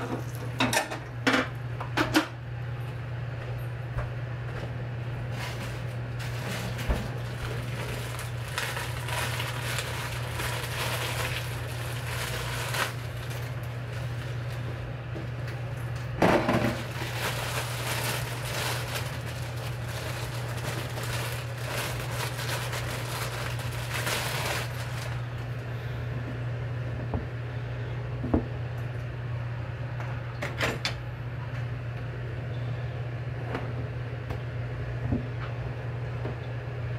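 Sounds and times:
steady low hum: 0:00.0 - 0:36.9
scraping and rustling: 0:05.3 - 0:14.7, 0:16.7 - 0:25.3.

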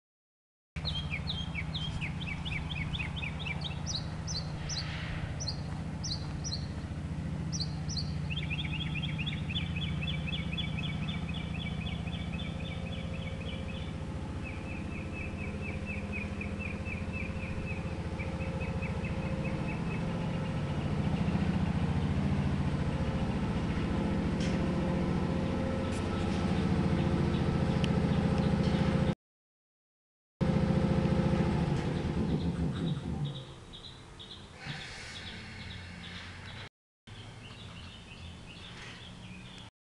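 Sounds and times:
birds chirping trills: 0:00.8 - 0:29.1, 0:31.8 - 0:39.7
air compressor humming: 0:30.4 - 0:33.5.

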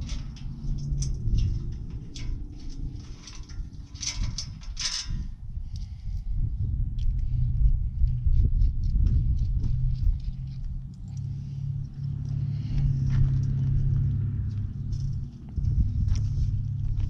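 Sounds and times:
metal fasteners clicking: 0:00.0 - 0:05.8
low rumble: 0:00.0 - 0:17.0.

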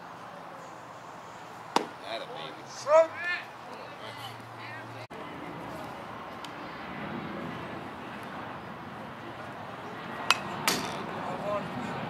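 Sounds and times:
ball hitting catcher's mitt: 0:01.7 - 0:02.0
ball hitting metal bat: 0:01.7 - 0:02.0, 0:10.3 - 0:11.0.

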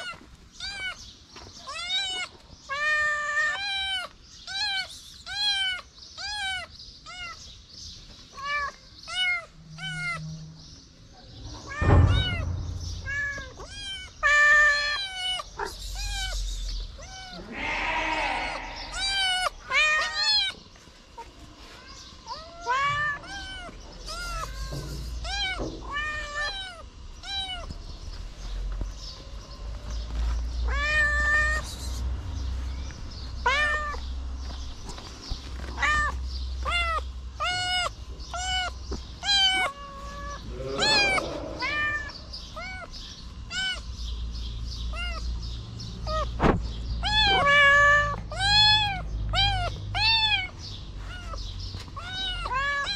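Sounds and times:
kittens meowing: 0:00.0 - 0:07.5, 0:08.3 - 0:10.5, 0:11.5 - 0:21.4, 0:22.2 - 0:27.8, 0:30.5 - 0:31.8, 0:33.3 - 0:34.1, 0:35.6 - 0:44.0, 0:44.9 - 0:45.4, 0:46.0 - 0:52.9
handling thump: 0:11.6 - 0:13.9, 0:46.4 - 0:46.8.

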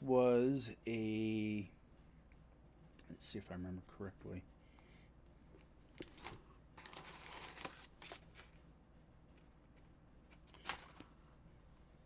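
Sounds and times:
paper rustling: 0:05.9 - 0:08.6, 0:09.4 - 0:11.4.

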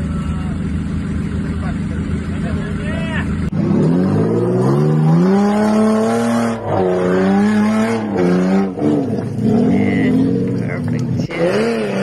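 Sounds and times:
engine revving hard: 0:03.5 - 0:10.6, 0:11.2 - 0:12.0.

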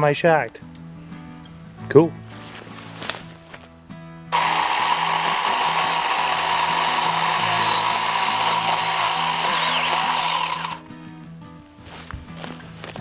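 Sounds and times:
electric chainsaw cutting vines: 0:04.3 - 0:10.8.

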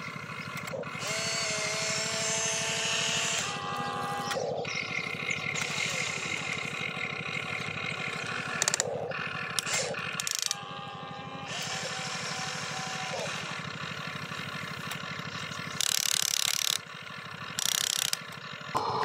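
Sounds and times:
toy electric motors whirring: 0:00.4 - 0:07.0, 0:07.6 - 0:13.7, 0:14.8 - 0:16.8, 0:17.5 - 0:18.4
sharp clicking and clatter: 0:08.5 - 0:10.6, 0:14.8 - 0:19.0.

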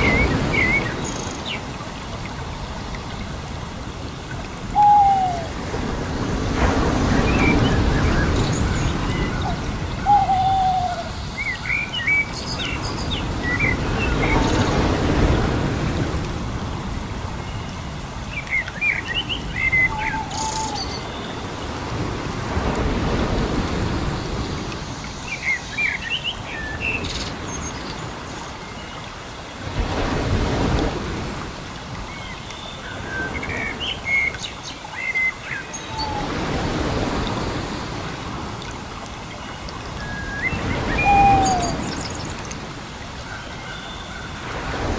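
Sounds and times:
descending bird call: 0:04.8 - 0:05.5, 0:09.4 - 0:11.1, 0:40.8 - 0:42.1
birds chirping: 0:39.4 - 0:42.5.

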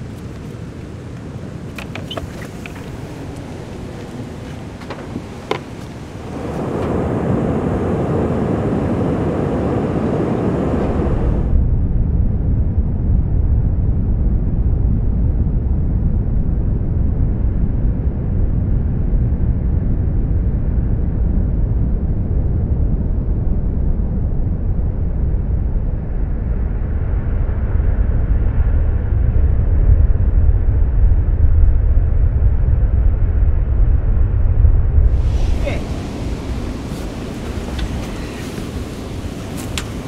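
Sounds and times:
surf breaking with muffled roar: 0:00.0 - 0:11.6, 0:35.0 - 0:40.0.

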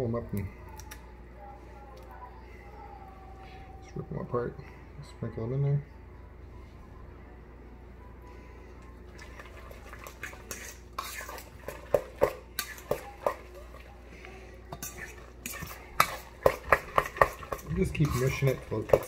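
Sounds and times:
fork scraping metal bowl: 0:09.7 - 0:13.8, 0:14.7 - 0:19.0.

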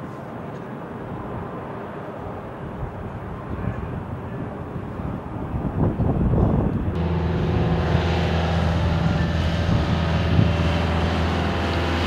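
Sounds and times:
engines droning low: 0:06.8 - 0:12.0.

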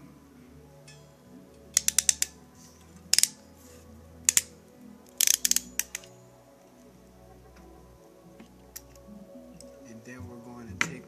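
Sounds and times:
ratcheting crimp tool clicking: 0:01.7 - 0:02.4, 0:03.1 - 0:03.4, 0:04.2 - 0:04.5, 0:05.1 - 0:06.1.

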